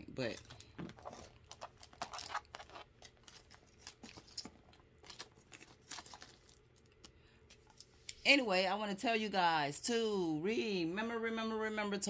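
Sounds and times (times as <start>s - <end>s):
paper wrapping crinkling: 0.2s - 7.0s.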